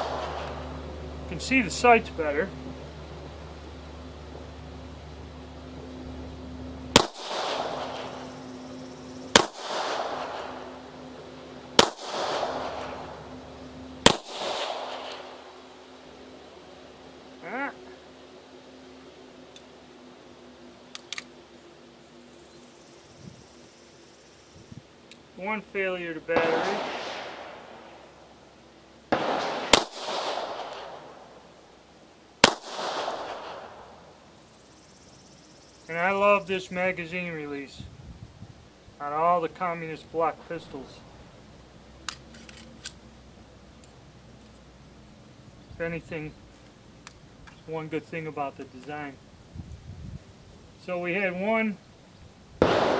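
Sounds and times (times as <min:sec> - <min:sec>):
pistol shots with echo: 0:00.0 - 0:00.7, 0:06.9 - 0:08.4, 0:09.2 - 0:10.8, 0:11.7 - 0:13.3, 0:14.0 - 0:15.5, 0:26.3 - 0:27.7, 0:29.1 - 0:31.2, 0:32.4 - 0:33.8, 0:52.6 - 0:52.9.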